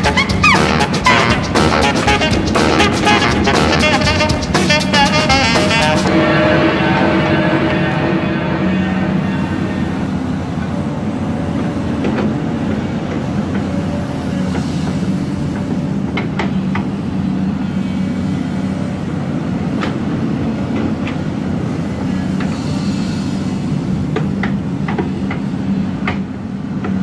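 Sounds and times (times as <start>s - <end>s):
excavator engine running: 0.0s - 19.5s.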